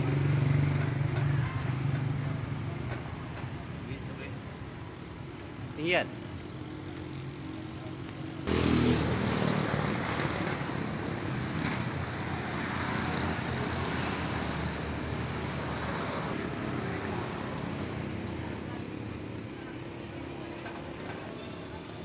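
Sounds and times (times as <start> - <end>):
road traffic passing: 0.0 - 22.0.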